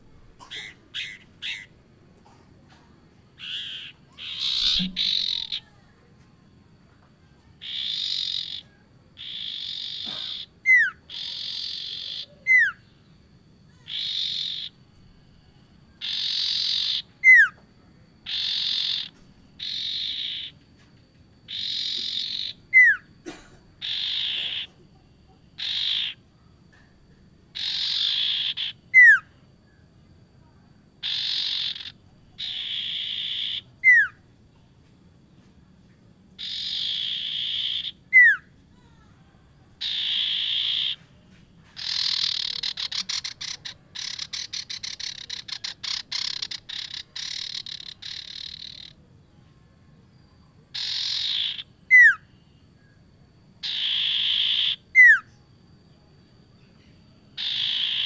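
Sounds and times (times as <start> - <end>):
bird rasping notes: 3.4 - 5.7
sharp downslurred bird whistle: 3.4 - 5.7.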